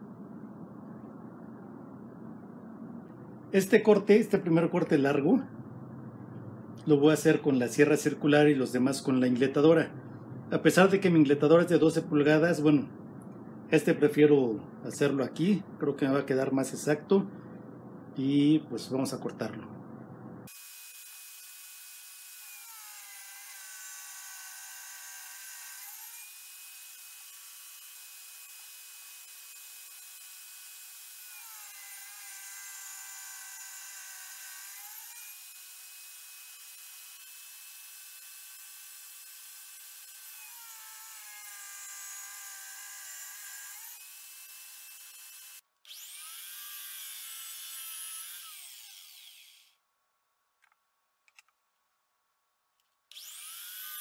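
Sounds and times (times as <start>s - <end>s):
table saw cutting wood: 20.5s - 49.7s, 53.1s - 54.0s
saw winding down: 20.5s - 49.8s, 53.1s - 54.0s.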